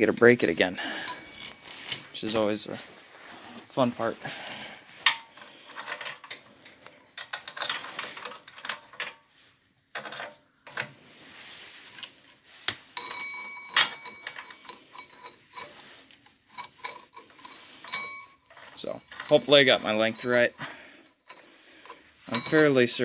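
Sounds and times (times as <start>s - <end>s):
metal chain clinking on sprocket: 0.8s - 2.6s, 13.0s - 23.0s.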